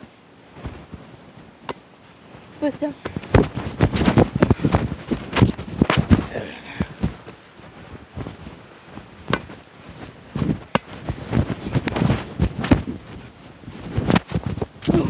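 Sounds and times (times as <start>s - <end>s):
rustling and bumping against fabric: 0.5s - 15.0s.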